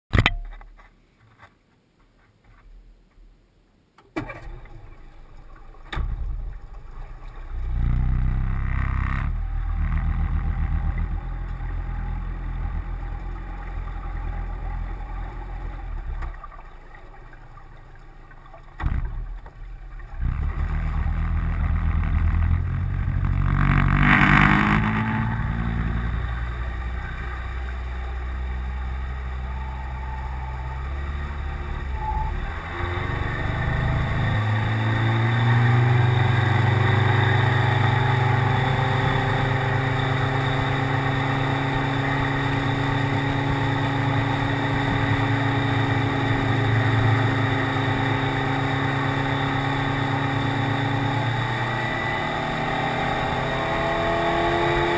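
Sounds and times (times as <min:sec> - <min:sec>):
outboard motor running: 0:04.2 - 0:54.9.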